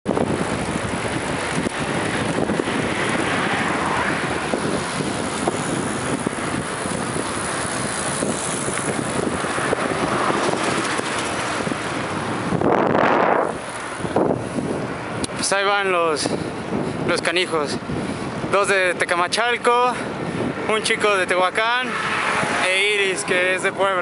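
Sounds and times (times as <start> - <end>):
road and tyre noise: 0.0 - 24.0
wind buffeting microphone: 0.0 - 24.0.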